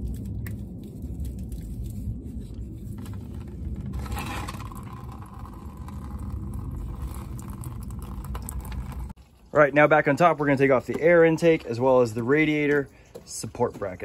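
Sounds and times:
steady low rumble: 0.0s - 9.5s
thin stream of coolant running: 3.9s - 9.1s.

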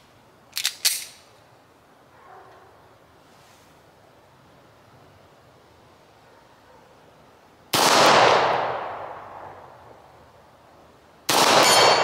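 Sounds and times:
pistol shots with echo: 7.7s - 9.6s, 11.3s - 12.0s.

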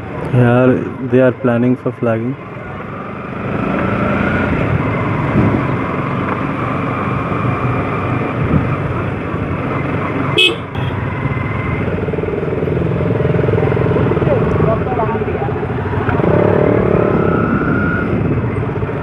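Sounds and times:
motorcycle engines running: 0.0s - 19.0s
vehicle horns tooting: 10.4s - 11.1s.

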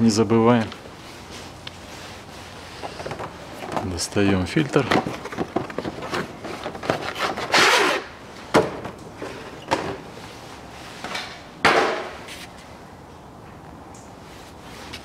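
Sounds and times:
cardboard and paper rustling: 0.7s - 7.7s
sharp knocks: 11.6s - 12.2s.

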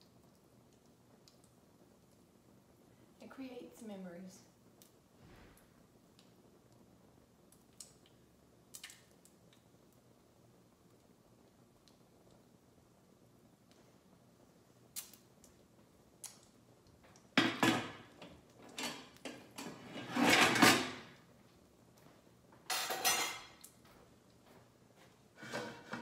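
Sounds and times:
baking pan and kitchenware clatter: 17.4s - 18.1s, 18.7s - 21.1s, 22.7s - 23.6s, 25.4s - 26.0s
drawer or cabinet worked: 18.8s - 21.1s, 25.4s - 26.0s.

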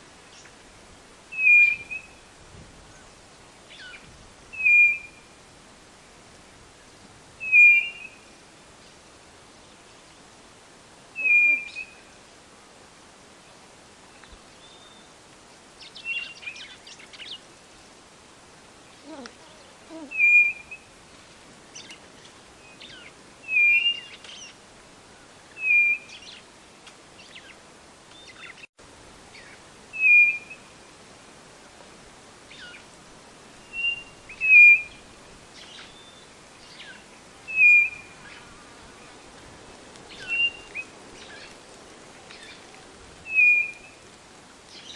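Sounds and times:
bird whistled call: 1.3s - 2.2s, 3.8s - 5.3s, 7.4s - 8.2s, 11.2s - 12.0s, 20.1s - 20.9s, 22.9s - 24.5s, 25.6s - 26.3s, 29.4s - 30.7s, 33.7s - 35.0s, 36.8s - 38.4s, 40.1s - 41.5s, 43.3s - 44.0s
faint bird chirps: 11.2s - 12.1s, 19.0s - 20.9s.

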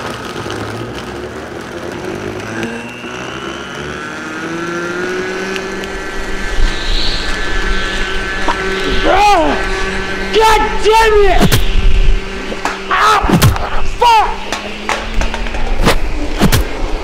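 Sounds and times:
blender grinding ice: 0.0s - 17.0s.

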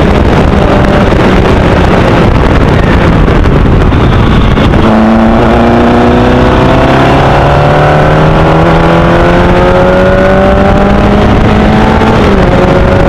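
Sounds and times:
race car engine accelerating: 4.7s - 13.0s.

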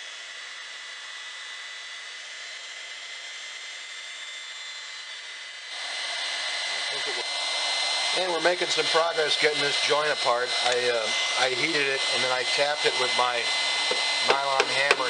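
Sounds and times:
heat gun blowing with whine: 0.0s - 15.0s.

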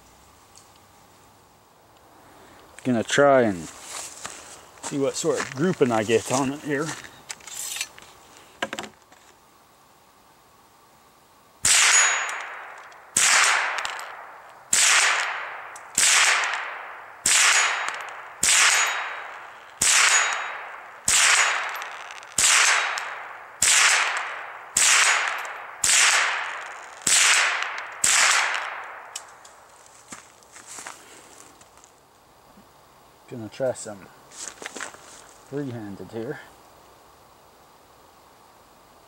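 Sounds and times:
rifle shots: 11.6s - 29.1s.

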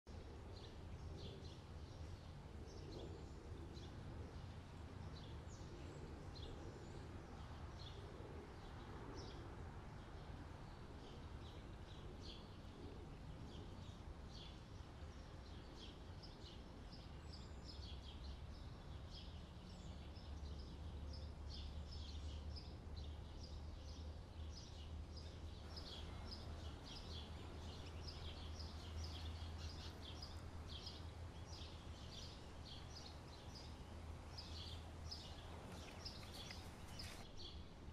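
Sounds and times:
low steady rumble: 17.2s - 37.9s
birds chirping: 17.3s - 37.6s.

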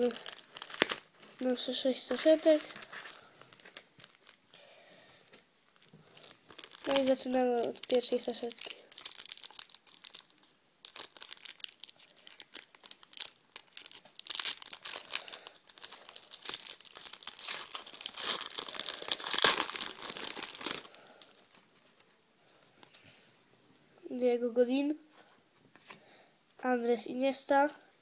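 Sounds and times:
foil packet tearing and crinkling: 0.0s - 4.4s, 5.8s - 21.6s.

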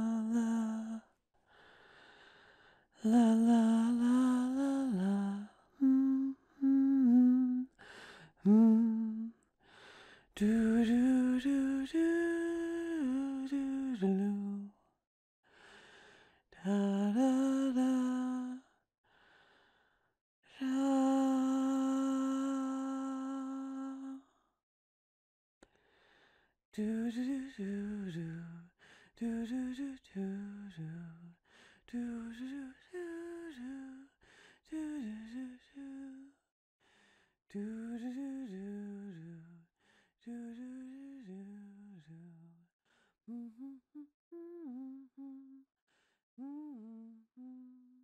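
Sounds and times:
woman humming a lullaby: 43.3s - 45.7s.

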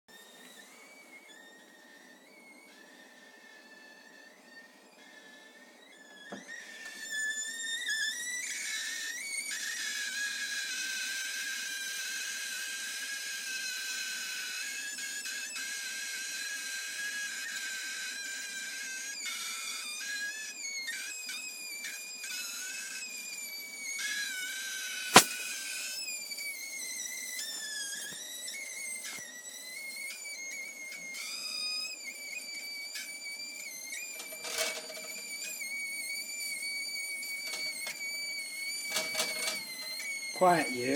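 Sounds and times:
sausages squealing whistles: 0.1s - 40.9s
sharp click: 25.1s - 25.6s.

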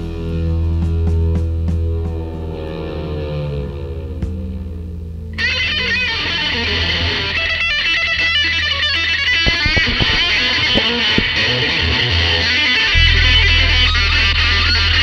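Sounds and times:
electric guitar bent notes: 9.4s - 15.0s
electric bass line: 9.5s - 15.0s.

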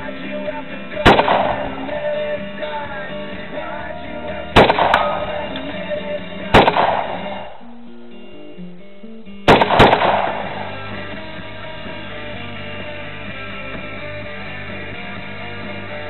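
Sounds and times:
rock music: 0.0s - 16.0s
rifle shots with echo: 1.0s - 2.2s, 4.5s - 5.5s, 6.5s - 7.6s, 9.4s - 11.1s.

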